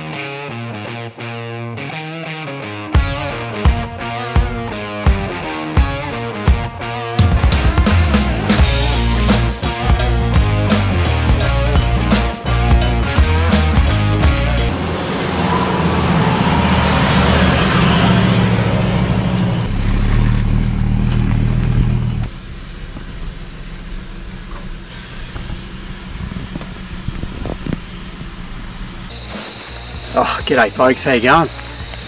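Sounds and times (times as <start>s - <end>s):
vehicle engine rumbling: 7.2s - 32.0s
rushing noise: 14.7s - 20.1s, 29.1s - 32.0s.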